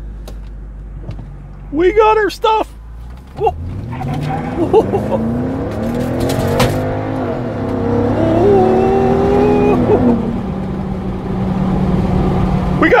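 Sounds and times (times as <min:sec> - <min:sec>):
car engine accelerating: 0:02.7 - 0:13.0.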